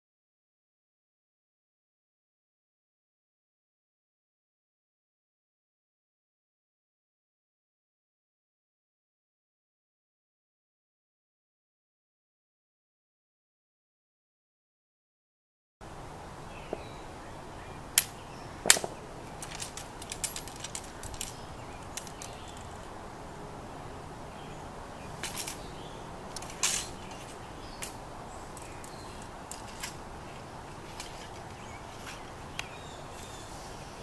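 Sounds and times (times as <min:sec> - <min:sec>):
outdoor background hiss: 0:15.8 - 0:34.0
musket clicks and rattles: 0:18.0 - 0:22.9, 0:25.2 - 0:25.7, 0:26.3 - 0:33.4.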